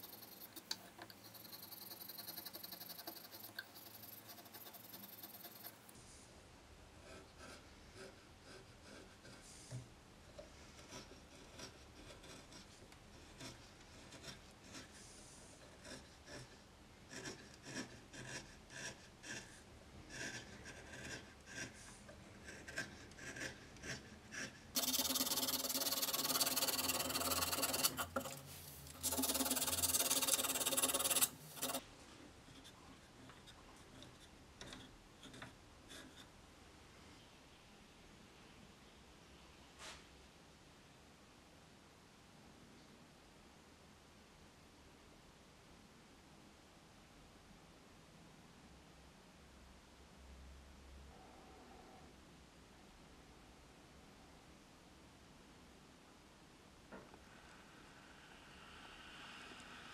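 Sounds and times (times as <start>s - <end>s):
chisel scraping wood: 0.0s - 5.8s, 7.0s - 9.9s, 10.5s - 14.9s, 15.6s - 31.8s.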